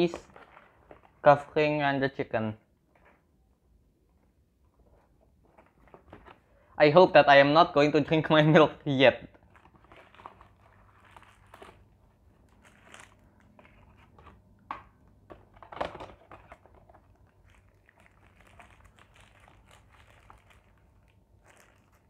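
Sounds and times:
paper wrapper crinkling: 0.0s - 1.5s, 9.3s - 14.5s, 15.5s - 22.0s.

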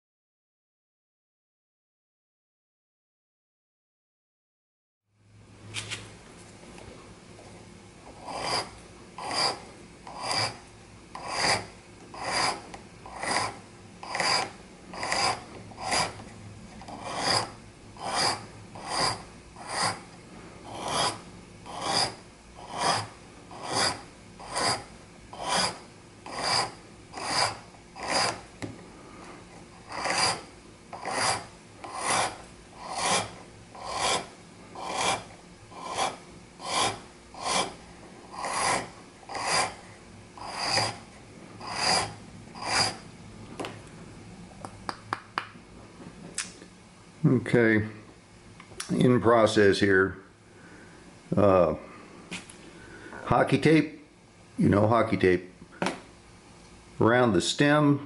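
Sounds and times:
hand file rasping on wood: 8.2s - 10.6s, 11.2s - 16.2s, 16.9s - 20.1s, 20.7s - 28.4s, 29.8s - 39.8s, 40.4s - 41.0s, 41.6s - 43.0s.

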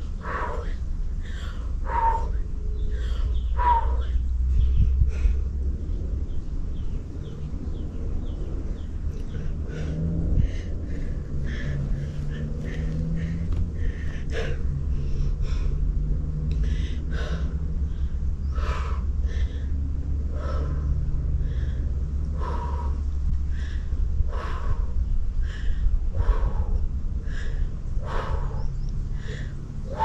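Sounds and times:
woman breathing hard: 0.0s - 6.0s, 8.2s - 30.0s
low rumble: 0.0s - 30.0s.

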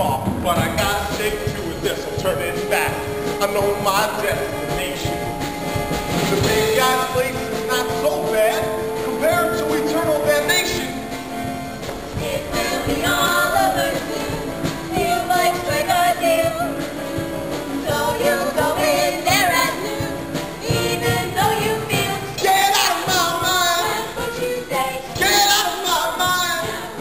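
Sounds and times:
live band playing: 0.0s - 27.0s
person singing with vibrato: 6.2s - 11.1s.

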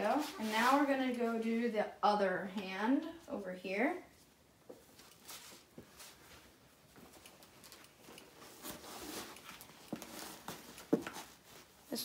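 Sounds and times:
cloth rustling: 0.0s - 1.1s, 4.2s - 12.0s.

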